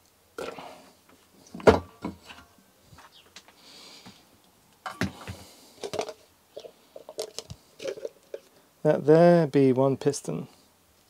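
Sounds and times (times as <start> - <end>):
faint hiss: 0.0 - 11.0.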